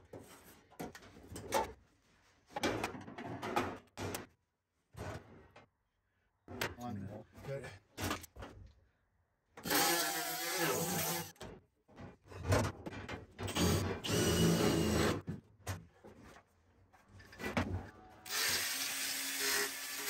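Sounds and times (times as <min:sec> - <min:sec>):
angle grinder cutting metal: 0:09.6 - 0:11.3, 0:18.3 - 0:20.0
cordless drill on sheet steel: 0:09.6 - 0:11.3, 0:13.5 - 0:15.2, 0:18.3 - 0:20.0.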